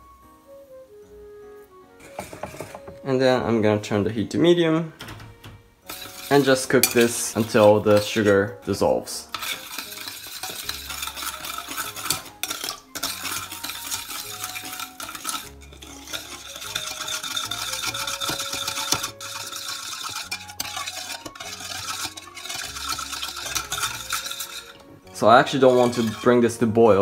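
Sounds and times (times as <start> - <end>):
metal spoon stirring in saucepan: 2.0 - 3.0, 5.8 - 27.0
spoon clinking against pan: 5.9 - 8.4, 9.3 - 26.3.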